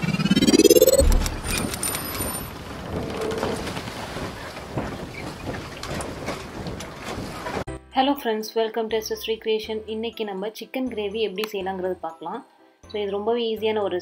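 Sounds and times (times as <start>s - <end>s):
rising swoosh: 0.0s - 2.4s
deep boom: 1.0s - 1.7s.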